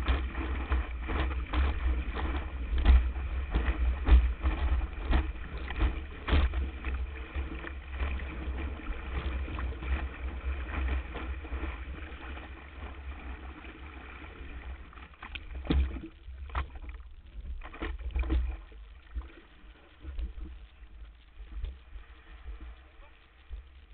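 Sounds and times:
wind buffeting camera: 0.0s - 12.2s
hull slapping water: 0.0s - 23.9s
water rushing and splashing: 0.0s - 23.9s.

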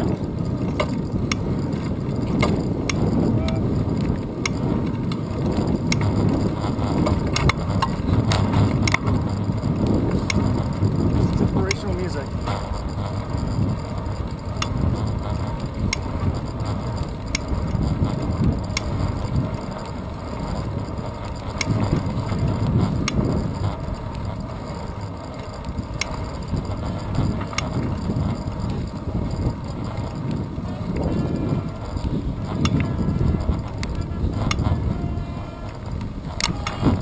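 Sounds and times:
tyres rumbling on asphalt: 0.0s - 37.0s
wind buffeting camera: 0.0s - 37.0s
faint sharp ticks: 7.0s - 20.7s, 21.3s - 35.0s, 35.6s - 37.0s.

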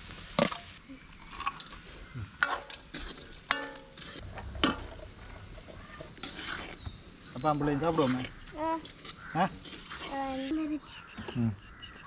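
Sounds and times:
spatula stirring rice in a wok: 5.6s - 10.2s.

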